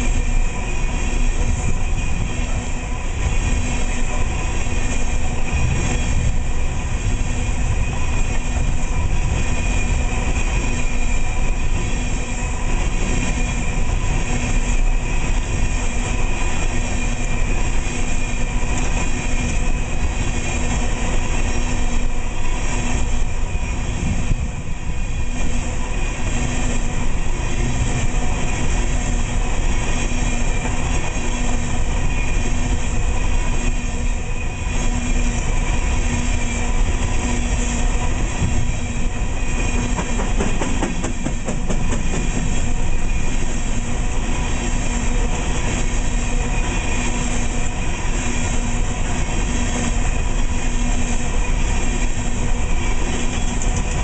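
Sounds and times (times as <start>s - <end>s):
freight train wheels rumbling on rail: 0.0s - 54.0s.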